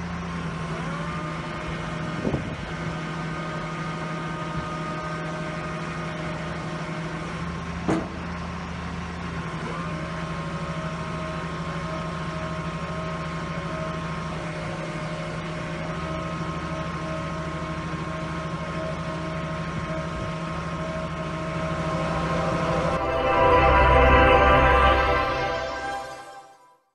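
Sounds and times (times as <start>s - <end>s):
steady whine: 21.0s - 26.8s.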